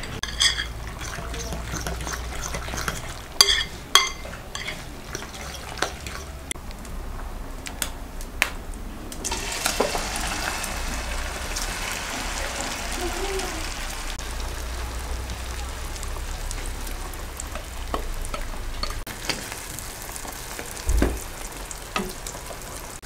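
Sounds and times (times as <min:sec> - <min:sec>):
sizzling in a frying pan: 0:00.0 - 0:06.4, 0:09.2 - 0:23.0
spoon stirring wet mixture: 0:00.0 - 0:06.6
spoon clinking against glass: 0:00.2 - 0:06.3.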